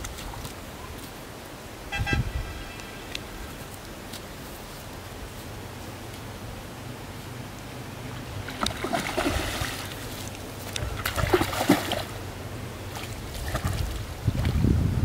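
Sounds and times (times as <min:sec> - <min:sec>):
fish splashing at water surface: 0:08.4 - 0:12.2.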